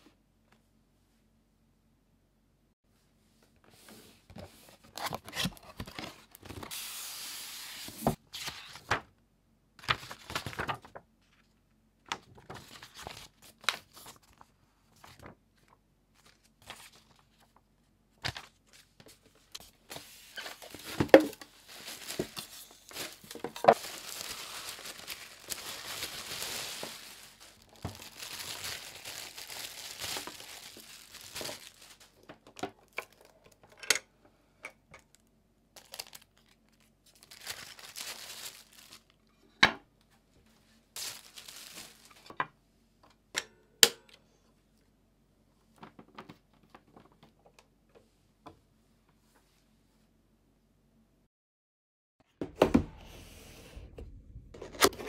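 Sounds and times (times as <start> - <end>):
plastic packaging crinkling: 19.9 - 33.3, 35.8 - 39.2, 41.0 - 42.3.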